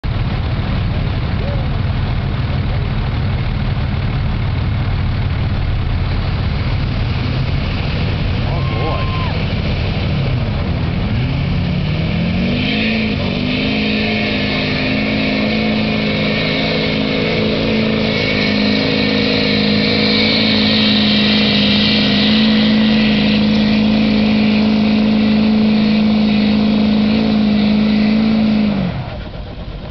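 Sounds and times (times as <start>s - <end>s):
diesel truck engine revving: 0.0s - 29.9s.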